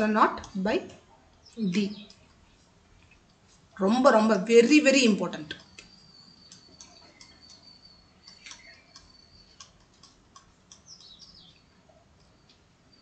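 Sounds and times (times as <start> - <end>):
stylus ticking on tablet screen: 0.0 - 2.4, 5.4 - 13.0
high falling chirps: 3.9 - 13.0.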